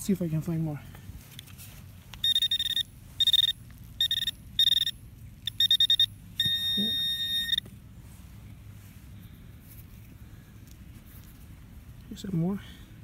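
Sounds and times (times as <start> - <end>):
metal detector probe beeping: 2.2 - 7.7.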